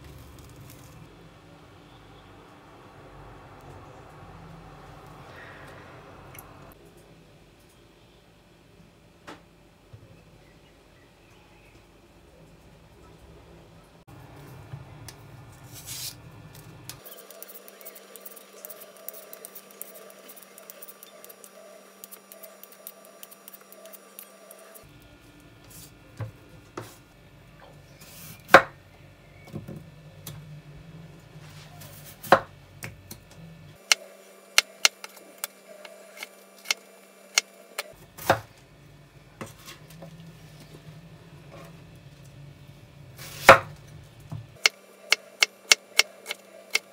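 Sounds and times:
vegetable peeler scraping potato: 17.0 - 24.9.

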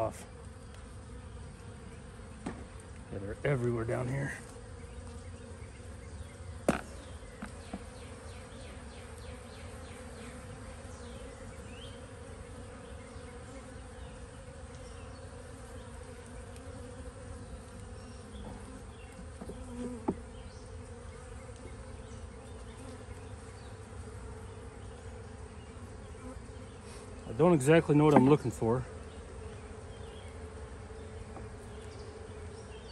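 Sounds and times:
bees humming: 0.0 - 32.9
wooden frames knocking: 28.1 - 28.4.

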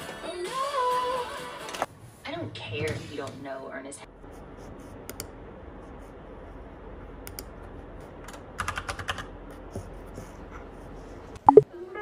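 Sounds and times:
mechanical keyboard typing: 8.6 - 9.3.

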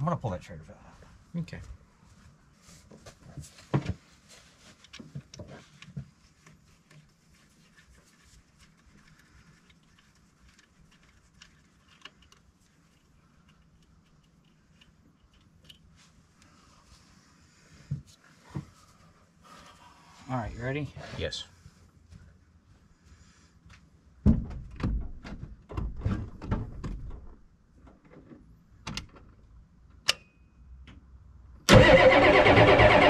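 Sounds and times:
small metal clicks and knocks: 9.1 - 15.9.

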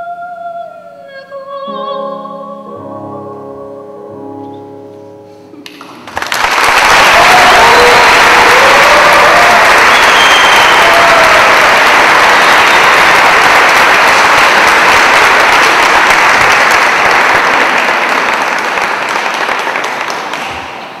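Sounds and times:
audience applauding: 5.6 - 21.0.

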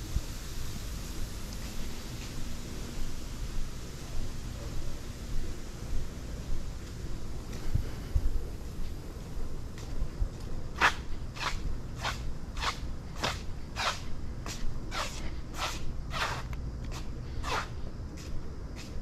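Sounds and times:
low steady rumble: 0.0 - 18.7
footsteps on concrete: 4.8 - 19.0.

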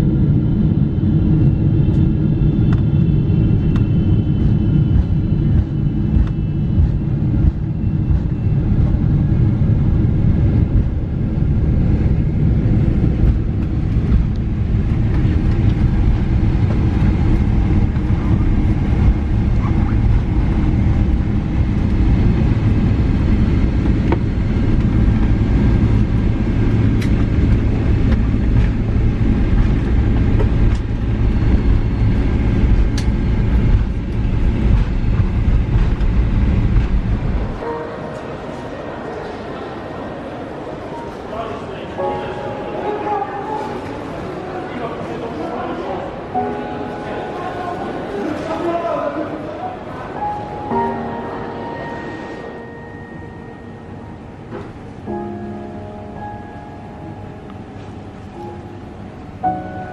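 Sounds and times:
engine and airflow rumble: 0.0 - 38.2.

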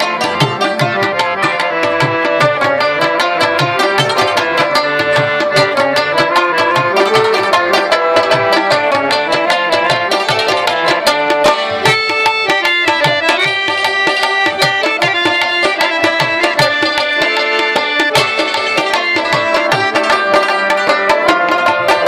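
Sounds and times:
held harmonium notes: 0.0 - 22.0
rabab plucked in quick runs: 0.0 - 22.0
tabla strokes: 0.0 - 22.0.

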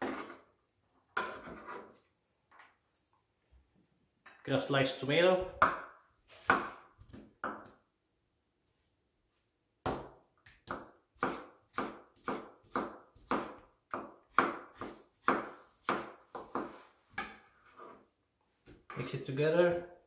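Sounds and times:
knife slicing tomato on board: 0.0 - 0.4, 1.2 - 1.9, 6.3 - 7.6, 9.9 - 18.0.

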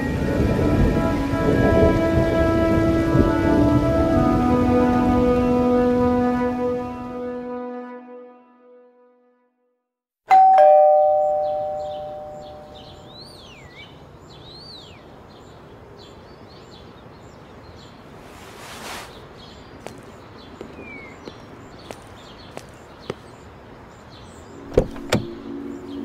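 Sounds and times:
two-tone doorbell chime: 10.3 - 13.0.

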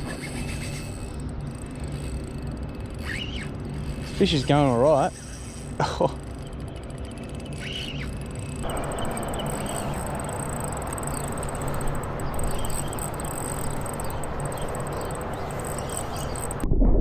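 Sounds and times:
outdoor background noise: 0.0 - 17.0
fishing reel ticking: 0.2 - 16.6
bird chirps: 6.4 - 16.6.

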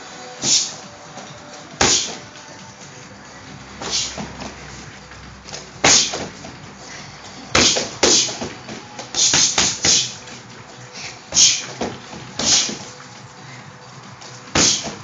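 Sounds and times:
punches and kicks on punching bag: 1.7 - 2.4, 5.5 - 6.7, 7.5 - 10.2, 11.3 - 12.9, 14.5 - 15.0.

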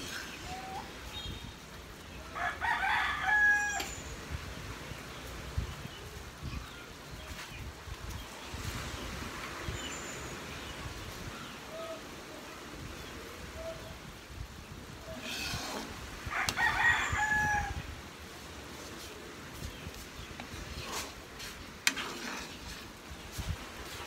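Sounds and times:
rooster crowing: 2.4 - 4.0, 16.3 - 17.8
ladle stirring: 20.4 - 23.4.

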